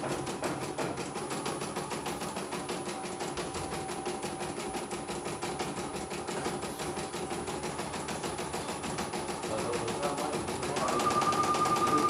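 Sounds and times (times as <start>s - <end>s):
embroidery machine needle clatter: 0.0s - 12.0s
machine motor hum: 6.7s - 12.0s.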